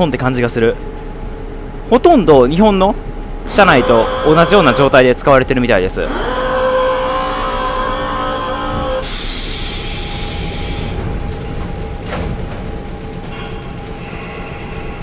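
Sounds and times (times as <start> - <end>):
air compressor whining: 0.0 - 15.0
air release hiss: 9.0 - 11.0, 13.4 - 15.0
clunk: 11.0 - 13.6.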